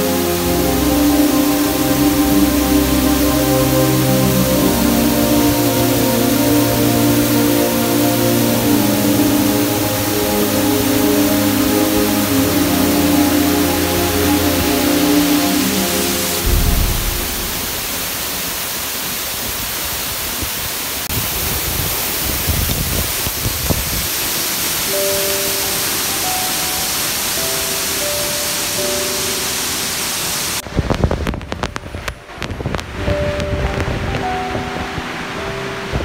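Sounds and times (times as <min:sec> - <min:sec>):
soft background music: 0:00.0 - 0:18.2, 0:24.6 - 0:36.0
rush of falling water: 0:00.0 - 0:36.0
low rumbling and crackling: 0:16.4 - 0:18.6.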